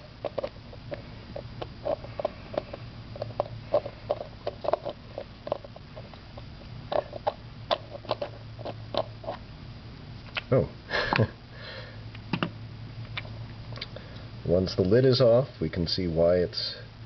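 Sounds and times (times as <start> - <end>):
low steady hum: 0.0 - 17.0
plastic clicks and knocks: 12.3 - 12.5.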